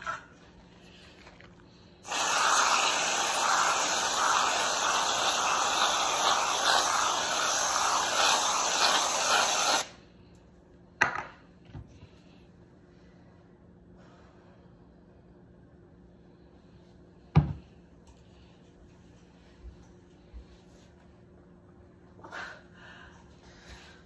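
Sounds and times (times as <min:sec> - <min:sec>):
aerosol can spraying hiss: 0:02.0 - 0:09.9.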